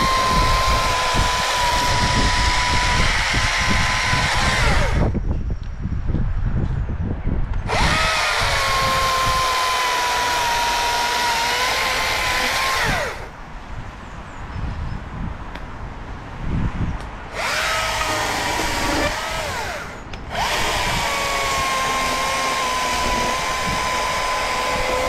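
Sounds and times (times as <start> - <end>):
battery chainsaw whining: 0.0 - 5.2, 7.7 - 13.3, 17.3 - 25.0.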